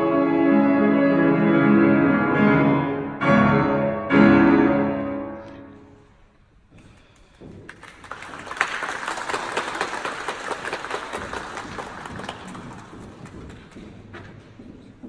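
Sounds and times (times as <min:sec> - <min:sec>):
audience applauding: 0:07.0 - 0:14.4.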